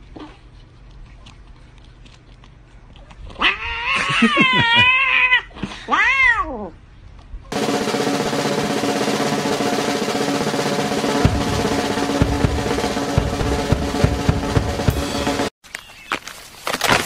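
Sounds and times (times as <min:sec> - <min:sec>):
low bass drum beats: 0:07.5 - 0:15.5
snare drum roll: 0:07.5 - 0:15.5
sustained held notes: 0:07.6 - 0:15.5.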